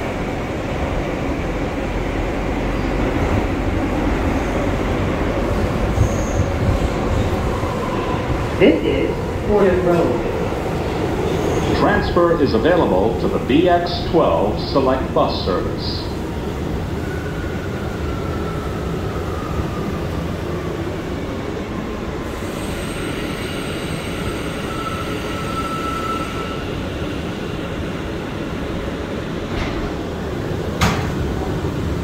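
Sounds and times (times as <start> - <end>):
train wheels rumbling on rail: 0.0 - 32.0
high squealing brakes: 5.9 - 7.0, 11.2 - 11.9, 22.3 - 26.8.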